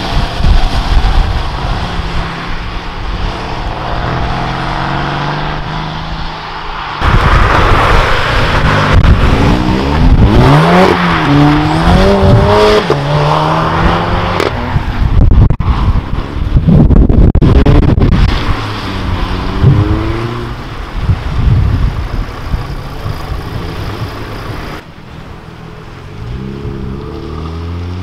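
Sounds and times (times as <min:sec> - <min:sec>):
car driving off: 0:00.0 - 0:28.0
car engine revving past: 0:01.6 - 0:14.7.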